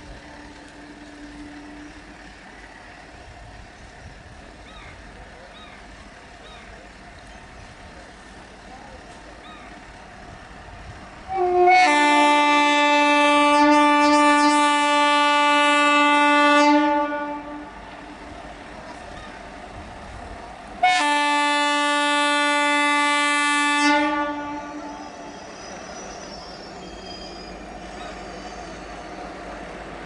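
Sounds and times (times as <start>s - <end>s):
low rumble of moving train: 0.0s - 30.0s
locomotive air horn blasts: 11.3s - 17.8s, 20.8s - 25.4s.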